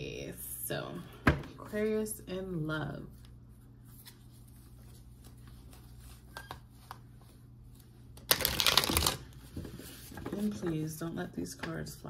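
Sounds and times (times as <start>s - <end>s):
cards being shuffled: 3.8s - 10.4s.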